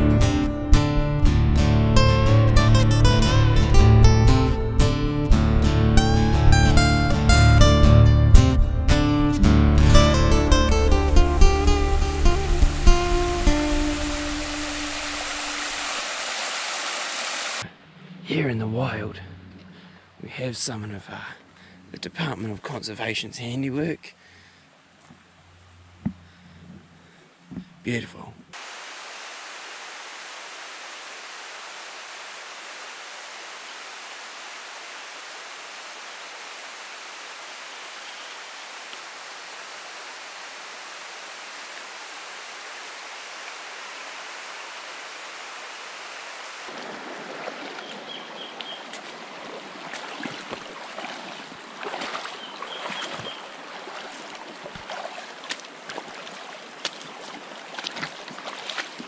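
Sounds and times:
rain: 9.8s - 17.7s, 28.6s - 52.2s
rocky stream: 9.8s - 17.7s, 28.5s - 59.0s
water rushing: 9.8s - 17.7s, 28.6s - 59.0s
water splashes and drips: 10.9s - 17.7s, 28.6s - 59.0s.

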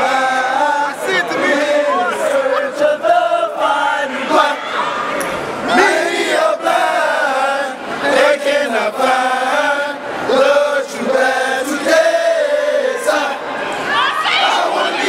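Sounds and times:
men chanting in unison: 5.7s - 13.5s.

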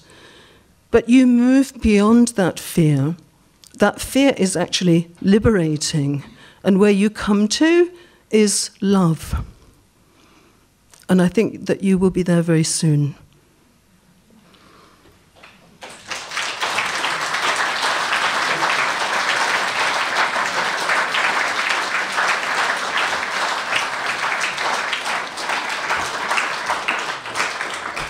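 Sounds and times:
audience applauding: 15.4s - 28.0s.

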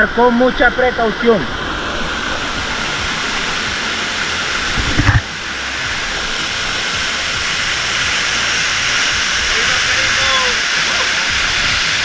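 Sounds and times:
waterfall rushing: 0.0s - 12.0s
short low thump: 4.7s - 5.3s.

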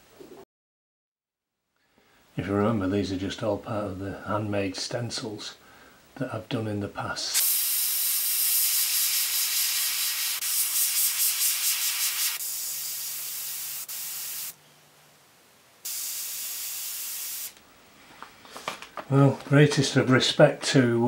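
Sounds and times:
airbrush spraying with hiss: 7.4s - 14.6s, 15.8s - 17.6s.

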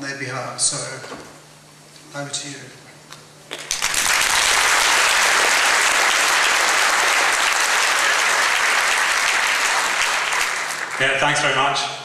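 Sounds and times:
large audience applauding: 3.5s - 11.2s.

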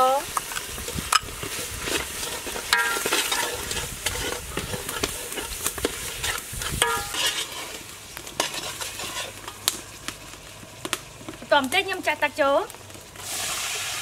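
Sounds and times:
paste sizzling in oil: 0.0s - 14.0s
metal ladle scraping pot: 0.4s - 9.8s
ladle squealing on metal pot: 1.1s - 7.8s.

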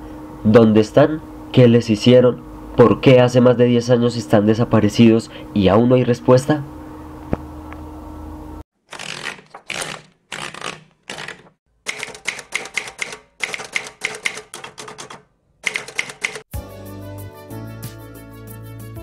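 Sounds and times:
typewriter keys striking: 8.9s - 16.5s
music: 16.5s - 19.0s.

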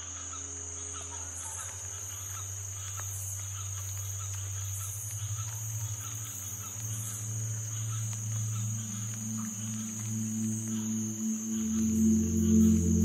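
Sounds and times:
high cricket-like chirring: 0.0s - 13.0s
low sustained drone: 4.5s - 13.0s.

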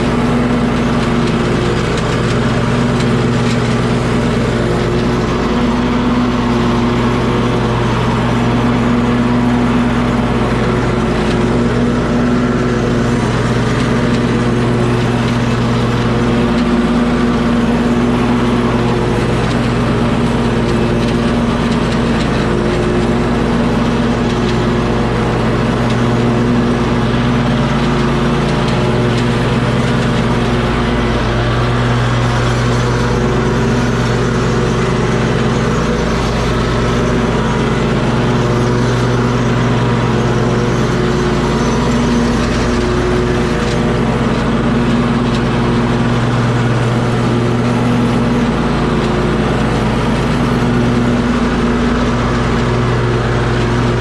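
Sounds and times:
engine running steadily: 0.0s - 54.0s.

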